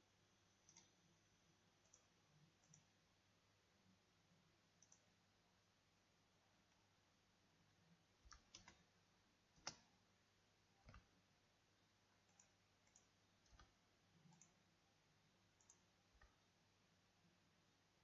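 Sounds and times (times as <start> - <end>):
computer mouse and keyboard clicks: 0.6 - 1.0, 4.8 - 5.1, 8.2 - 8.9, 9.6 - 9.9, 10.8 - 11.1, 12.2 - 14.6, 15.6 - 16.4.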